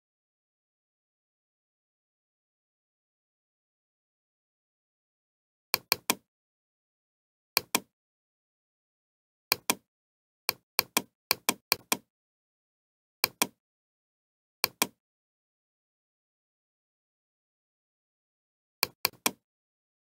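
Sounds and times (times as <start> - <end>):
computer mouse button clicking: 5.8 - 6.2, 7.6 - 7.9, 9.5 - 9.8, 10.5 - 12.1, 13.2 - 13.6, 14.6 - 15.0, 18.8 - 19.4.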